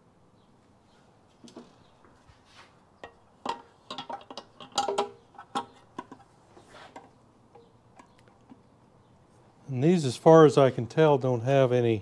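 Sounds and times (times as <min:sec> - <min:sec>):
metal parts clicking and knocking: 0:03.0 - 0:06.2.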